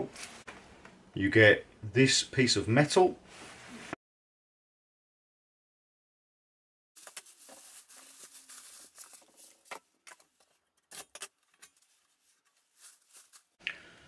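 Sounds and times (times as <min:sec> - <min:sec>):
plastic wrapping crinkling: 0:07.0 - 0:13.6.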